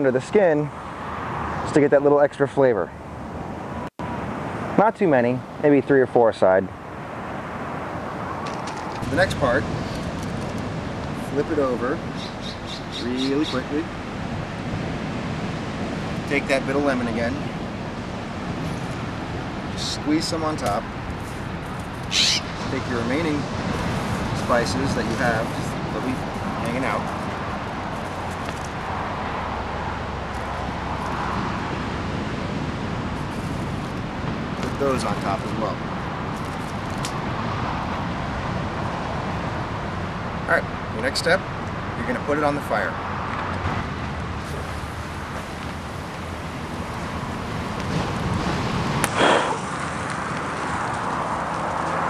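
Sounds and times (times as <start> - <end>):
cars passing: 0.0 - 52.0
outdoor background rush: 0.0 - 52.0
road traffic: 0.0 - 52.0.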